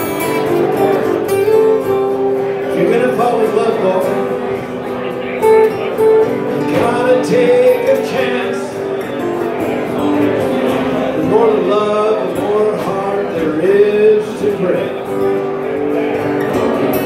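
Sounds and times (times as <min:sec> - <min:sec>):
acoustic guitar: 0:00.0 - 0:17.0
man singing into a microphone: 0:02.6 - 0:04.5, 0:06.5 - 0:09.1, 0:10.8 - 0:15.4.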